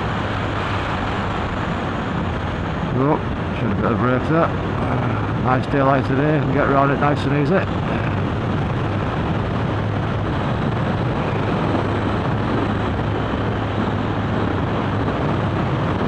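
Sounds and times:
road noise: 0.0s - 16.0s
wind noise: 0.0s - 16.0s
motorcycle engine running: 7.7s - 16.0s.

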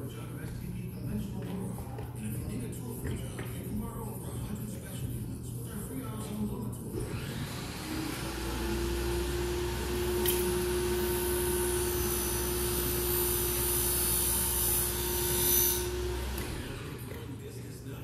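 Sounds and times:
electric blower motor whine: 7.0s - 17.4s.

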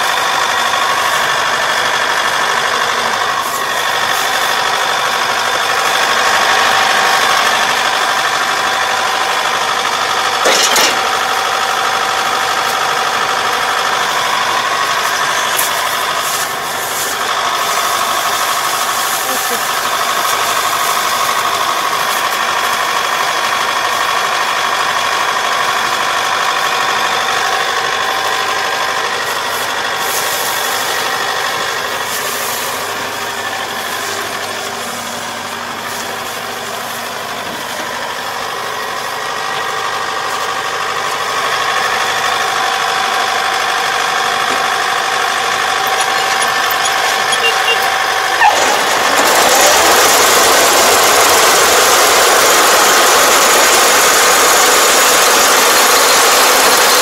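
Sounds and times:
combine harvester engine and machinery: 0.0s - 57.0s
constant whine: 27.4s - 57.0s.

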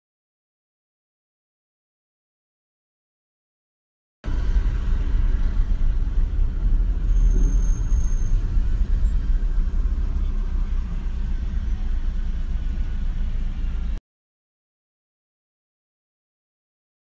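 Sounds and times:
car interior road and engine rumble: 4.2s - 14.0s.

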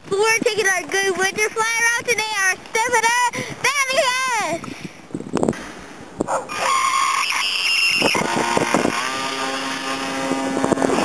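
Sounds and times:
electric motor and propeller whining: 6.4s - 11.0s.

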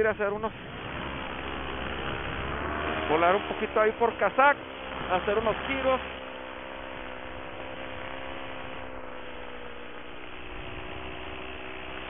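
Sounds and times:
paramotor engine droning: 0.0s - 12.0s.

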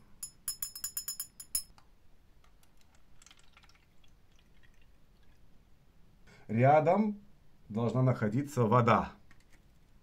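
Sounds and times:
glass rod clinking in glass bottle: 0.2s - 1.8s.

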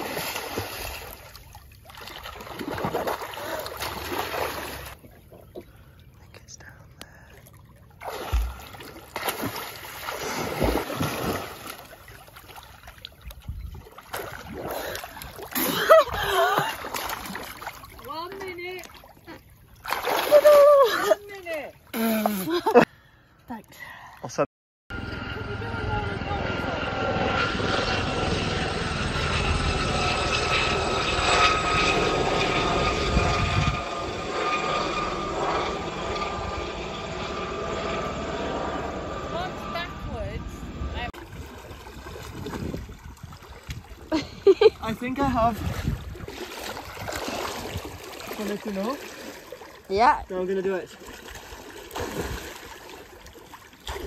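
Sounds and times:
pool water splashing: 0.0s - 5.4s, 7.5s - 22.8s, 45.4s - 54.0s
helicopter engine whine: 24.9s - 41.4s
helicopter rotor rumble: 24.9s - 49.0s.

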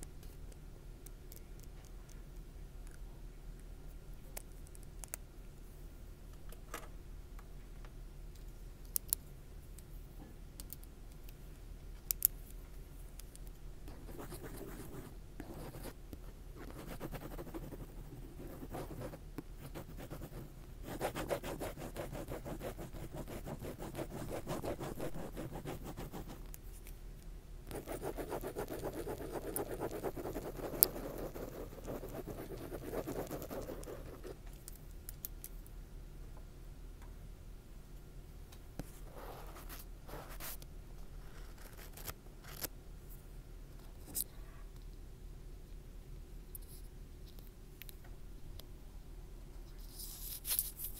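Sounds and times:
scratching and rubbing at microphone: 16.7s - 26.4s, 27.7s - 34.4s, 38.9s - 40.6s, 41.2s - 42.6s, 49.7s - 50.9s.

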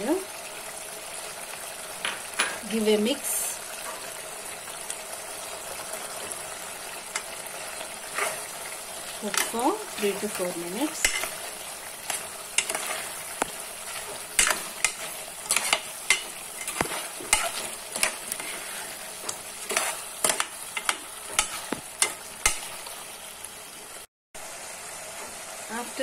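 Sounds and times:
frying sizzle: 0.0s - 26.0s
metal ladle scraping a pot: 8.0s - 8.6s, 13.9s - 22.2s.

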